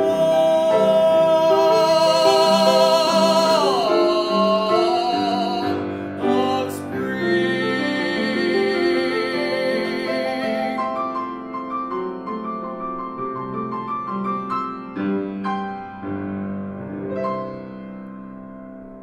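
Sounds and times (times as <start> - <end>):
man singing classical vibrato: 0.0 - 11.6
grand piano playing: 0.0 - 19.0.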